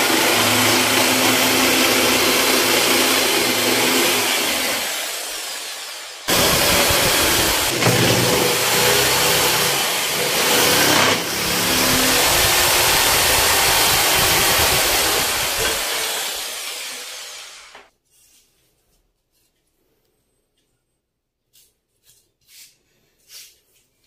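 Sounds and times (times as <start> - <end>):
jigsaw cutting wood: 0.0 - 17.9.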